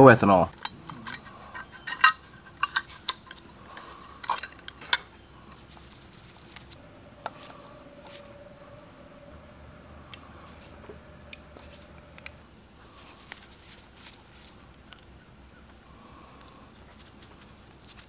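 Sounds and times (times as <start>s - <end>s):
faint steady hum: 0.0s - 18.0s
metal parts clicking and clinking: 0.5s - 6.8s.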